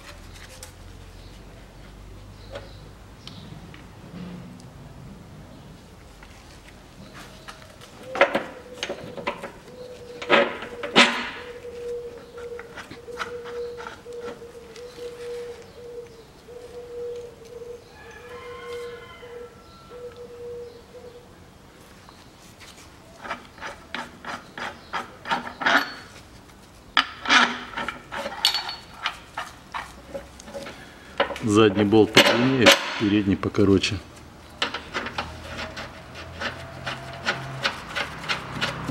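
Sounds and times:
wrench and bolts clinking: 0:27.0 - 0:29.9
wrench metallic rasps and clicks: 0:34.6 - 0:38.9.

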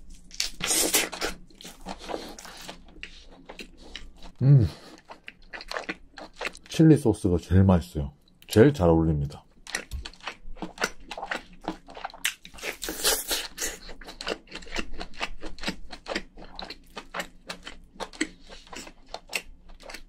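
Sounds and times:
person chewing wetly: 0:00.3 - 0:06.7, 0:09.5 - 0:20.0.

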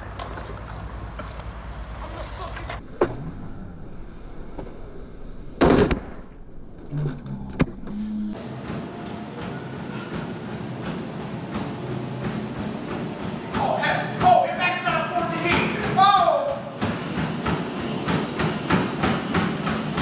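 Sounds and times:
skateboard rolling rumble: 0:00.0 - 0:02.8
skateboard landing slap: 0:05.6 - 0:06.3.

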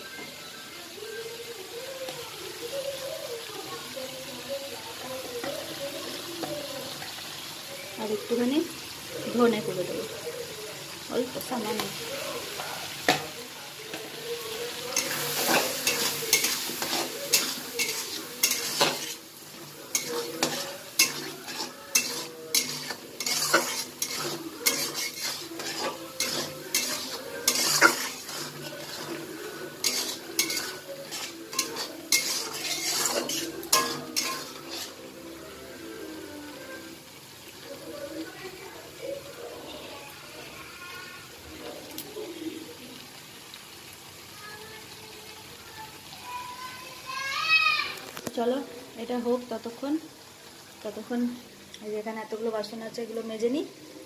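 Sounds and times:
masala sizzling in oil: 0:00.0 - 0:54.0
metal spatula scraping a pan: 0:11.5 - 0:35.2.

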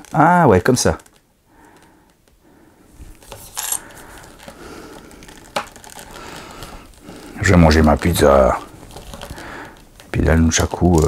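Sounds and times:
action figure rubbing and fumbling: 0:03.0 - 0:10.2.

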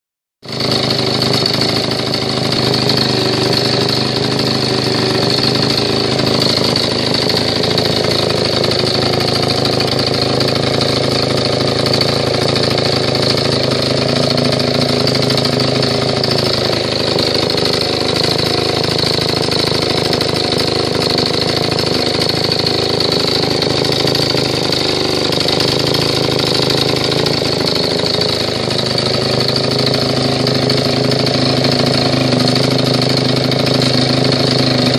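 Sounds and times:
stationary engine running: 0:00.4 - 0:34.9.

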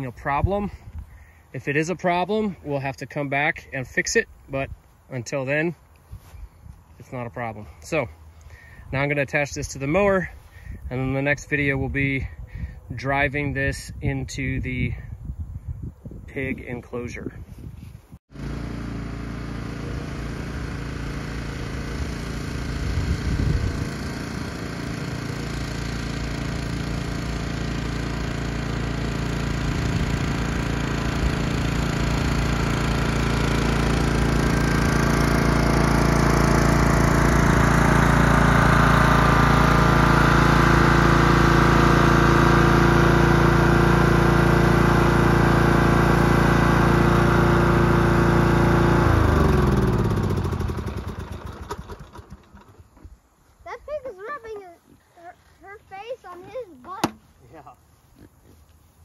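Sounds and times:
riding lawn mower engine running: 0:18.3 - 0:53.6, 0:55.2 - 0:57.3.

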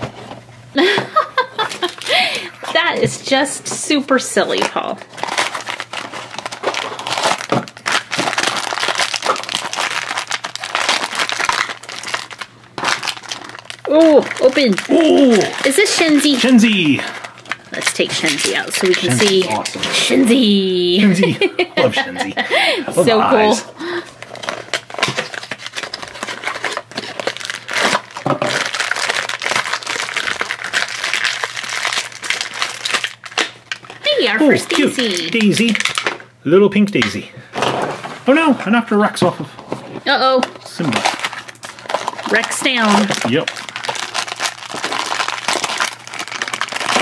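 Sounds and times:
plastic bag crinkling: 0:01.4 - 0:03.0, 0:04.4 - 0:20.6, 0:23.6 - 0:36.3, 0:40.7 - 0:47.0.

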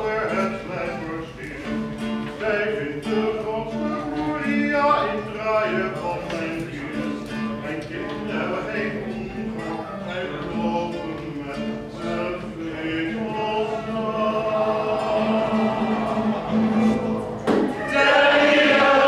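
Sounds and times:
man singing close: 0:00.0 - 0:17.2
choir singing: 0:12.8 - 0:19.0.

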